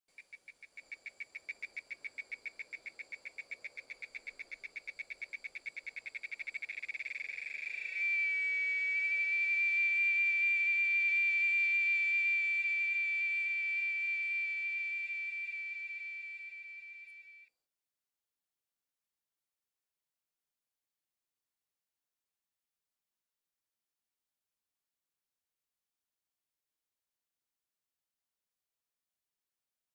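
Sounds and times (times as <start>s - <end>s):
cicada buzzing: 0.2s - 17.2s.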